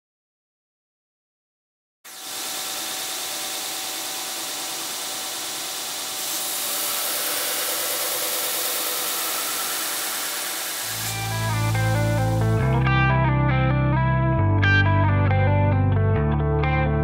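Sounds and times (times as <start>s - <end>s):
belt grinder running: 2.1s - 12.8s.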